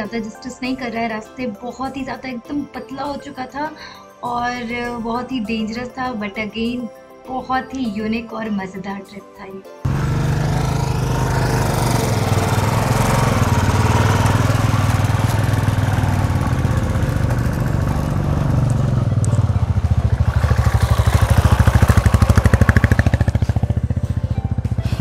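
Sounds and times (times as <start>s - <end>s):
motorcycle engines running: 9.9s - 25.0s
rapid thumping exhaust beat: 9.9s - 25.0s.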